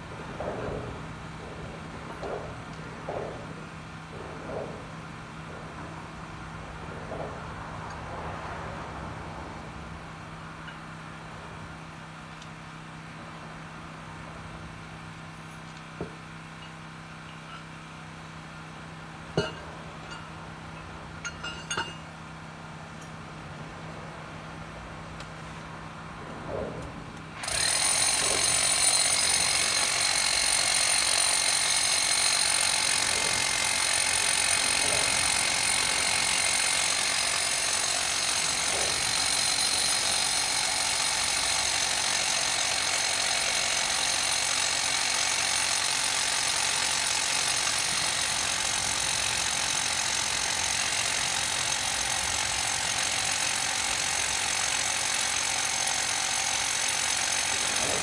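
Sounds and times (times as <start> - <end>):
hammer drill boring into concrete: 27.4 - 58.0.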